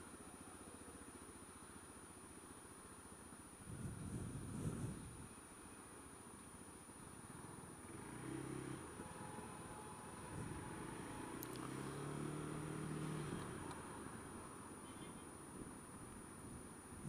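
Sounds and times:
faint high whine: 0.0s - 12.2s
wind buffeting microphone: 3.6s - 5.2s.

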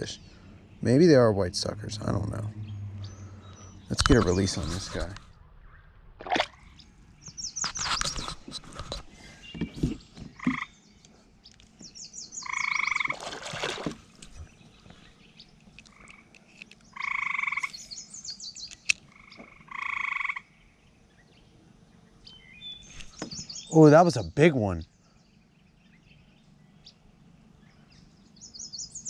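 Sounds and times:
fish splashing into water: 6.2s - 6.7s, 13.0s - 14.5s
frog calling in pulsed trills: 12.4s - 13.1s.

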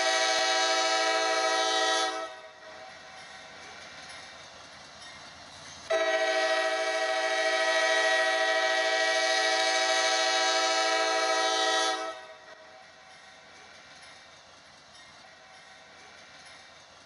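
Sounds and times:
locomotive air horn: 0.0s - 2.6s, 5.9s - 12.5s.

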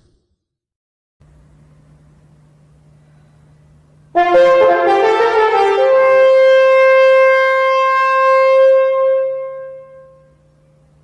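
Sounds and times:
french horn playing: 4.2s - 10.4s.

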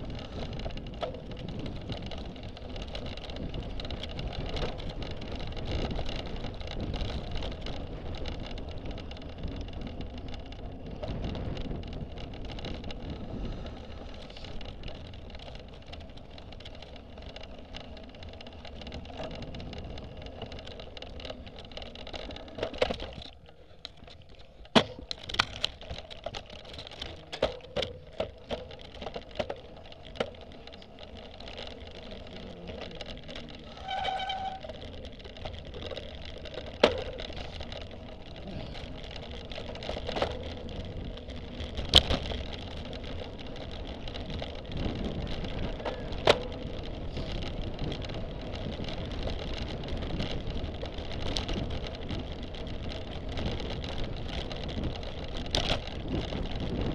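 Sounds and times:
wind noise: 0.0s - 17.0s, 31.9s - 56.9s
bicycle tyres on grass: 0.0s - 56.9s
bike and camera mount rattling: 0.0s - 56.9s.

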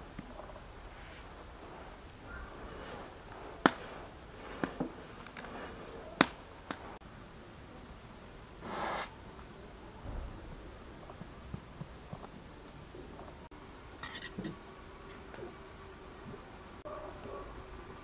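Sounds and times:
wood fire crackling: 0.0s - 13.5s
rustling swish: 0.8s - 7.0s
sharp pops: 2.3s - 7.0s.

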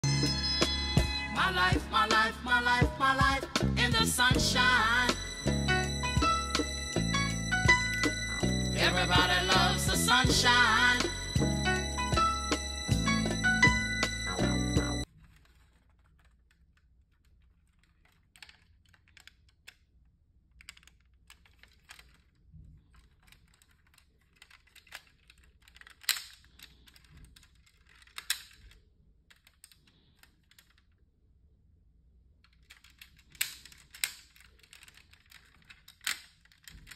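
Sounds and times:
clicks and taps handling model car: 22.9s - 30.9s.

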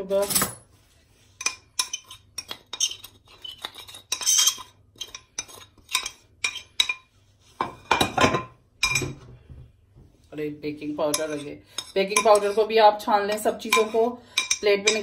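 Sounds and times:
metal spoon scraping metal bowl: 1.3s - 8.1s, 11.0s - 15.0s.

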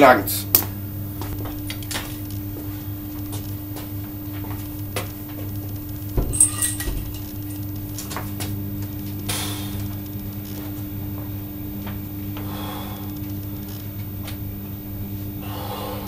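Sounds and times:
steady low hum: 0.0s - 16.0s
weights clinking and knocking: 6.2s - 7.4s.

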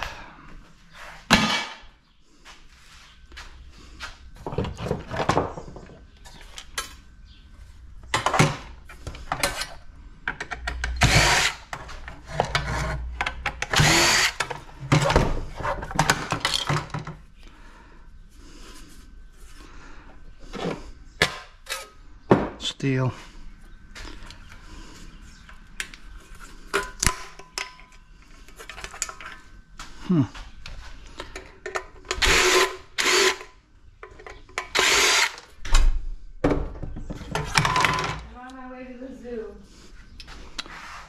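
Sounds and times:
metal plate dropped into bucket: 1.3s - 1.8s
metal and plastic parts clattering: 8.1s - 17.2s, 37.1s - 38.3s
cordless drill running: 11.0s - 11.7s, 13.6s - 14.4s, 32.2s - 33.5s, 34.7s - 35.4s.

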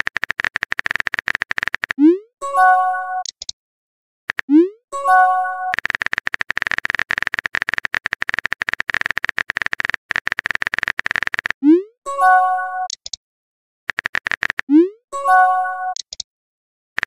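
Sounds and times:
phone keyboard typing clicks: 0.0s - 2.0s, 3.2s - 3.6s, 5.6s - 11.6s, 12.8s - 13.2s, 13.9s - 14.8s, 15.8s - 16.3s
message chime: 2.4s - 3.2s, 5.0s - 5.7s, 12.1s - 12.9s, 15.2s - 16.0s.

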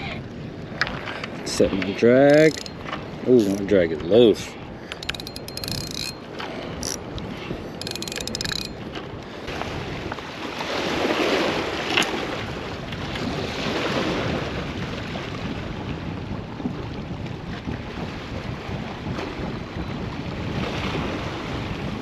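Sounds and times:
wind buffeting microphone: 0.0s - 22.0s
rapid clicking: 4.9s - 6.2s, 7.8s - 8.8s.

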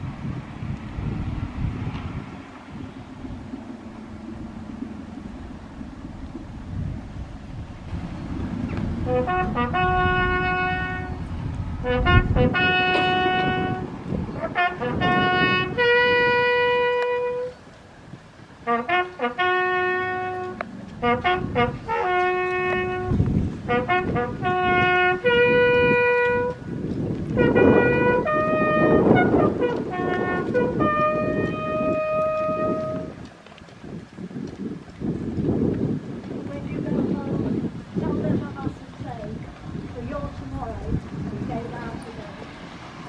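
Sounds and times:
solo trumpet bugle call: 9.1s - 11.2s, 11.8s - 17.6s, 18.6s - 26.6s, 27.4s - 33.2s.

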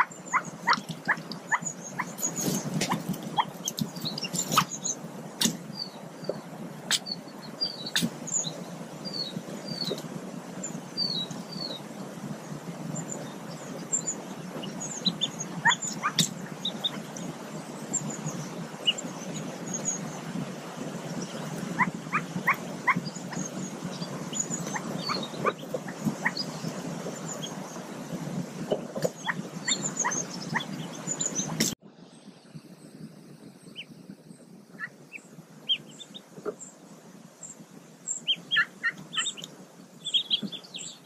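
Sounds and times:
ducklings peeping: 0.0s - 31.8s, 33.6s - 33.9s, 34.7s - 36.8s, 37.4s - 41.0s
low rough rustling: 0.0s - 31.8s.

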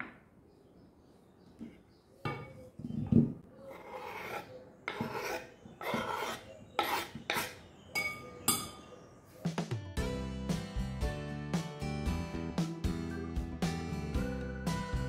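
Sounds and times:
knife scraping cutting board: 3.7s - 7.7s.

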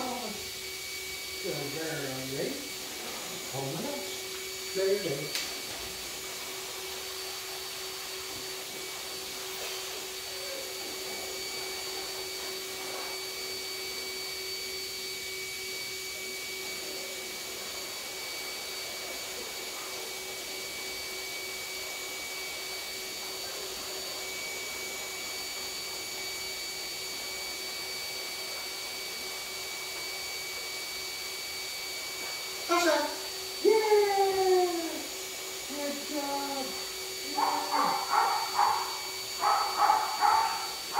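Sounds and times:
high-pitched whines: 31.4s - 40.9s
electric motor whirring: 32.5s - 40.9s.

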